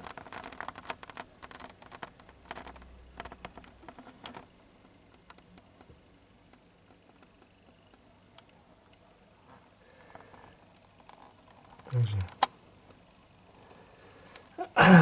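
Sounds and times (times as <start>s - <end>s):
faint handling clicks and crackles: 0.0s - 14.6s.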